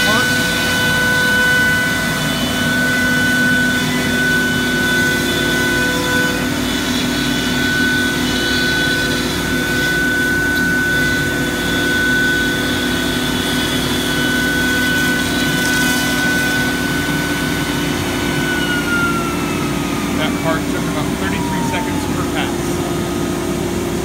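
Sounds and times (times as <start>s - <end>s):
router spindle high whine: 0.0s - 24.0s.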